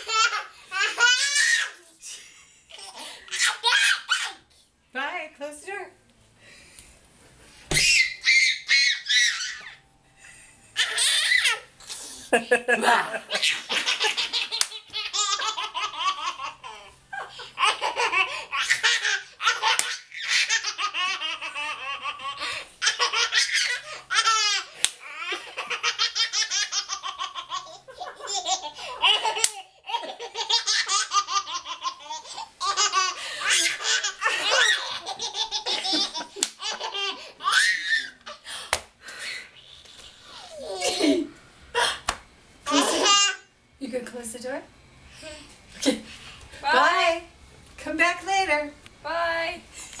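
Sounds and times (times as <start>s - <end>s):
toddler girl laughing: 0.0s - 4.4s, 7.8s - 9.8s, 10.8s - 11.7s, 12.3s - 38.4s, 39.6s - 41.3s, 42.7s - 43.4s.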